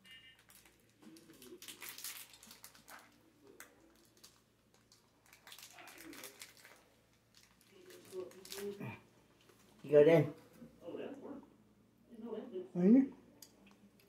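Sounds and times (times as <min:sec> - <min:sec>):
candy wrapper crinkling: 0:00.3 - 0:09.6.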